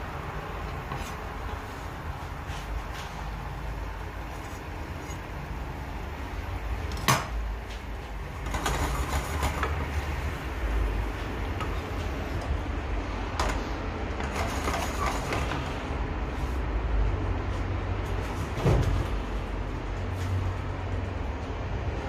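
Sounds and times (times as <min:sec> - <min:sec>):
clattering and scraping: 0:13.4 - 0:15.8.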